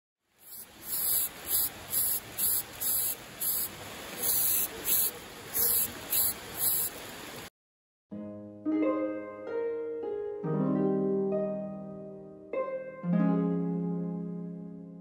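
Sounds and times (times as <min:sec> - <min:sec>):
soft steady hiss: 0:00.3 - 0:07.5
spray bottle squirts: 0:00.4 - 0:07.4.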